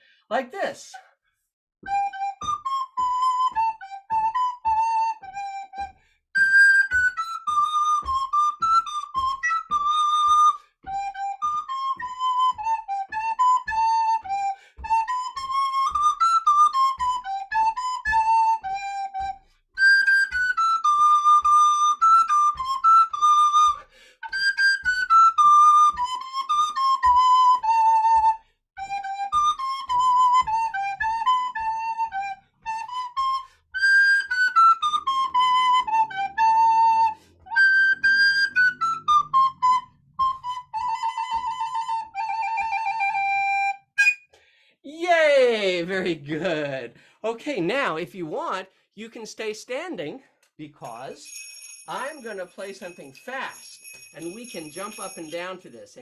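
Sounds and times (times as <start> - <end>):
recorder playing a tune: 1.9 - 44.3
feet stepping in time: 6.8 - 19.4.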